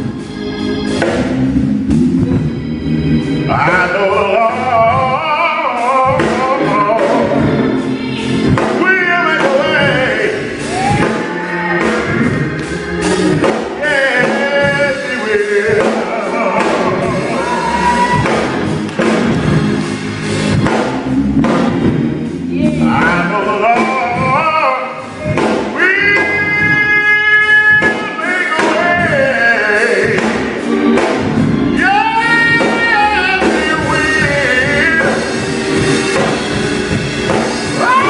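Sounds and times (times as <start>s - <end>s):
backing music: 0.0s - 38.0s
man singing gospel into microphone: 3.4s - 18.6s, 22.5s - 30.8s, 31.6s - 38.0s.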